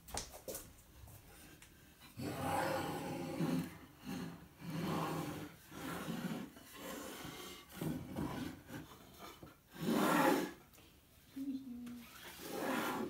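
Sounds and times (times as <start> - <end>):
wooden boards scraping on tabletop: 2.2 - 10.6, 12.1 - 13.0.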